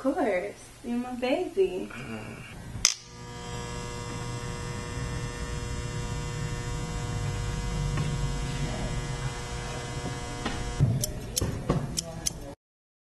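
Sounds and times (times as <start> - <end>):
electric hair clippers buzzing: 2.8 - 12.5.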